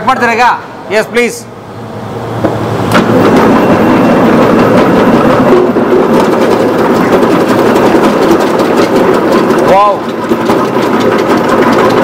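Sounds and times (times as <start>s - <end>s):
vegetable cutting machine clattering: 2.9s - 12.0s.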